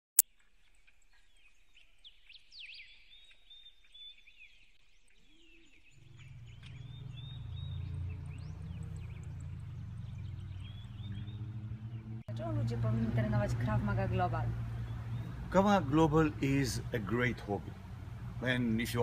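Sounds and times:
small birds chirping: 0:00.2 - 0:19.0
low rumble: 0:06.0 - 0:15.5.

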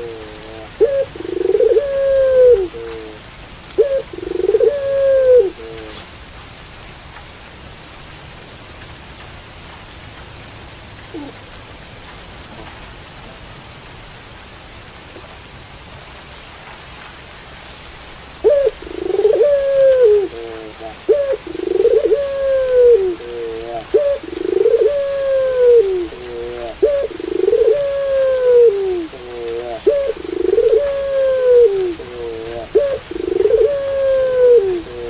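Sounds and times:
dove cooing: 0:00.0 - 0:03.2, 0:03.8 - 0:06.1, 0:11.1 - 0:11.5, 0:18.4 - 0:35.0
steady rain hissing: 0:00.0 - 0:35.0.

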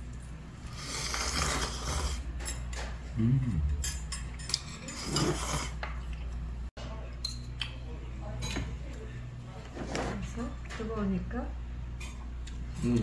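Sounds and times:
person slurping noodles: 0:00.7 - 0:02.2, 0:04.9 - 0:05.8.

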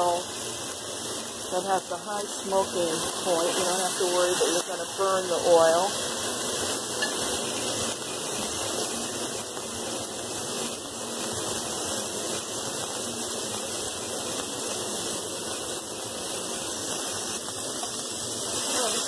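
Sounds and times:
steak sizzling in a frying pan: 0:00.0 - 0:19.0.

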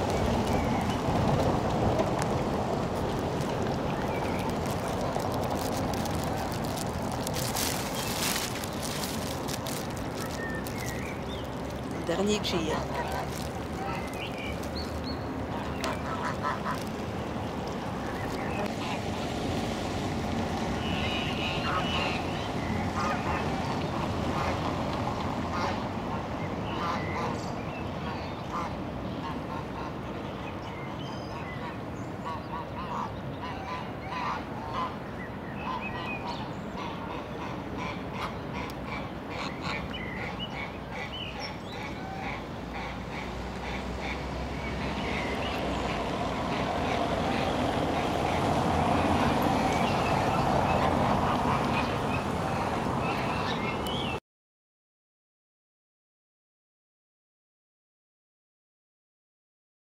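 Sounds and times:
waterfowl calling: 0:12.0 - 0:17.0, 0:20.8 - 0:22.3
geese honking: 0:15.8 - 0:16.9.

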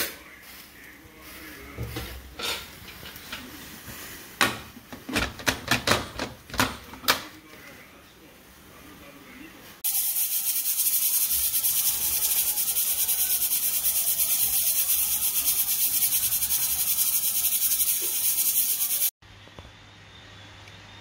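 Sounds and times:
steam hissing from pressure cooker: 0:09.8 - 0:19.1.

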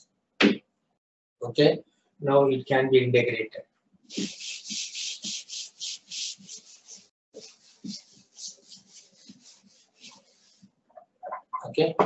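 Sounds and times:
eraser wiping chalkboard: 0:04.1 - 0:10.7.

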